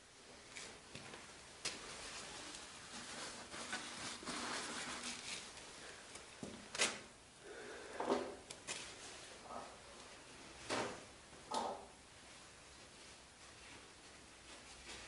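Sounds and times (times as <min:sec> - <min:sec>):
paper towel rustling: 0:00.4 - 0:07.1, 0:12.2 - 0:15.0.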